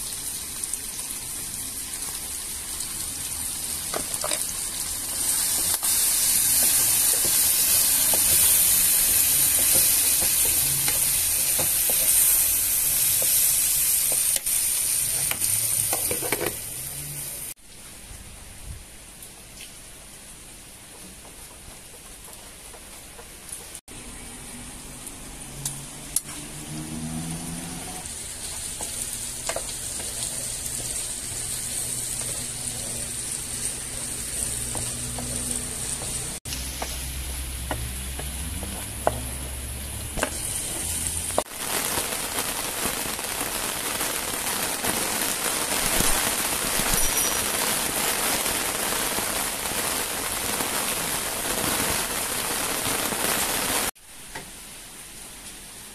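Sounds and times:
steady rain: 0:00.0 - 0:09.7, 0:24.4 - 0:55.9
food sizzling in frying pan: 0:00.0 - 0:17.6, 0:25.0 - 0:54.4
wooden spoon knocking on pan: 0:34.6 - 0:39.5.

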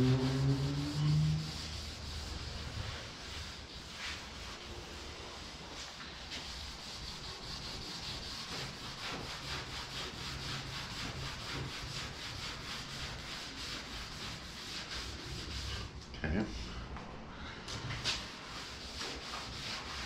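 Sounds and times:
hand scrubbing on steel: 0:00.0 - 0:04.6.

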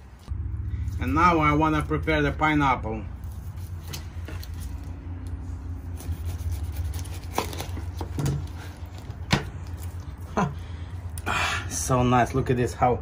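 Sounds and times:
low rumble: 0:00.0 - 0:06.4
knife cutting pineapple: 0:05.7 - 0:10.2.

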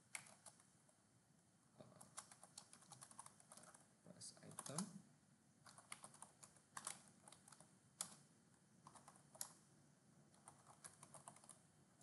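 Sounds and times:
keyboard typing: 0:00.0 - 0:00.7, 0:01.8 - 0:03.9, 0:04.5 - 0:05.0, 0:05.6 - 0:09.6, 0:10.3 - 0:11.7.

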